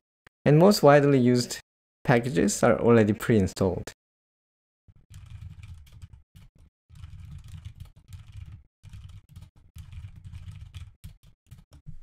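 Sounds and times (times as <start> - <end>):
keyboard typing: 4.9 - 12.0.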